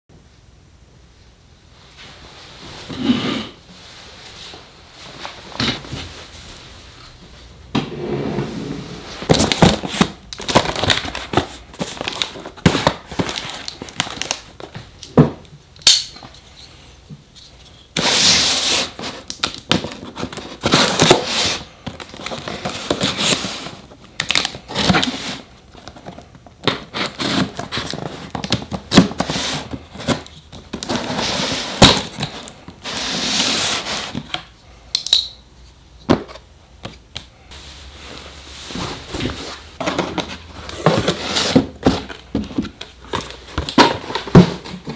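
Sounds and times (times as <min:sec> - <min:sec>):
tape tearing: 0:18.0 - 0:34.4
cardboard flaps scraping: 0:37.6 - 0:44.9.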